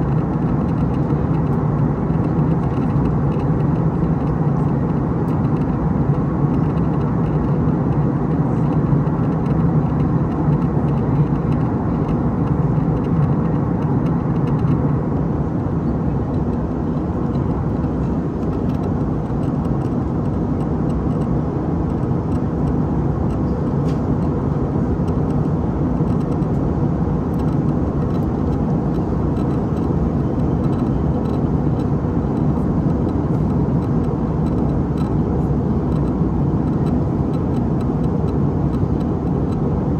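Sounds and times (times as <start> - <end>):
airliner engine hum: 0.0 - 39.9.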